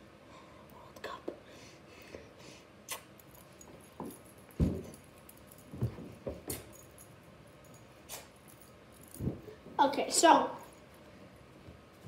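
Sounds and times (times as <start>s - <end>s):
soft handling knocks and bumps: 3.5s - 7.0s, 9.0s - 9.8s, 11.0s - 12.0s.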